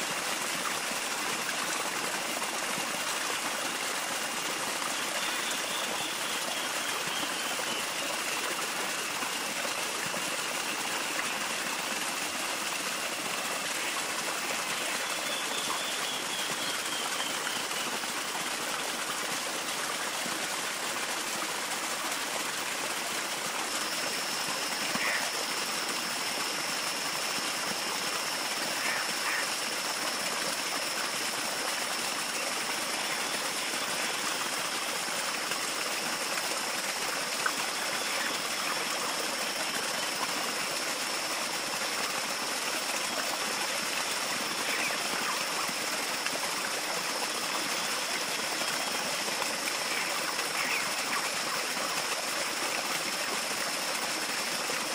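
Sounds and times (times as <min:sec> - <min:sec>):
running water rushing: 0:00.0 - 0:54.9
thin high-pitched calls: 0:24.2 - 0:26.3, 0:28.7 - 0:29.6, 0:44.5 - 0:45.7, 0:49.8 - 0:51.6.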